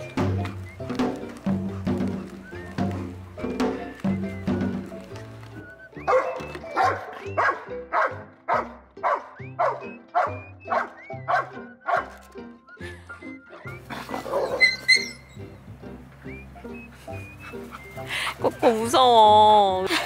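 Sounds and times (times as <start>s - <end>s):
background music: 0.0s - 20.0s
puppy barking: 6.0s - 12.2s, 13.6s - 15.2s.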